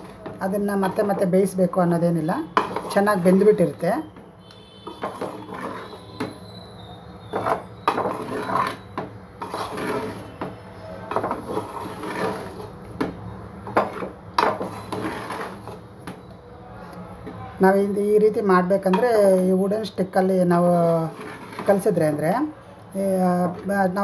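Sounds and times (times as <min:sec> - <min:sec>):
wooden spatula scraping a pot: 0:00.0 - 0:16.3, 0:20.5 - 0:22.5, 0:23.1 - 0:24.0.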